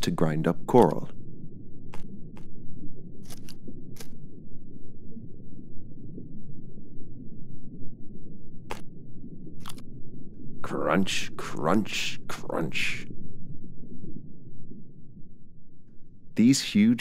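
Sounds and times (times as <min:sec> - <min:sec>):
steady low rumble: 0:00.0 - 0:17.0
fish crunching coral: 0:01.9 - 0:04.4, 0:08.7 - 0:08.9, 0:09.6 - 0:09.9.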